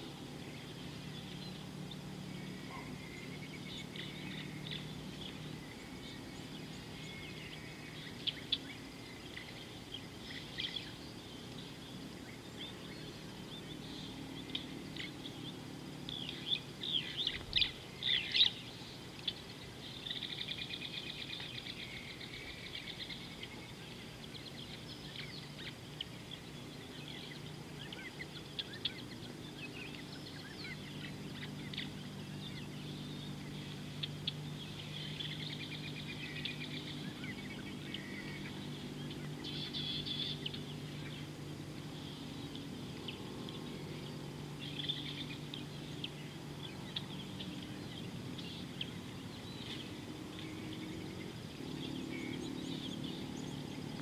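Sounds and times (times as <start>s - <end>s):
birds chirping and trilling: 0.0s - 54.0s
low steady hum: 0.0s - 54.0s.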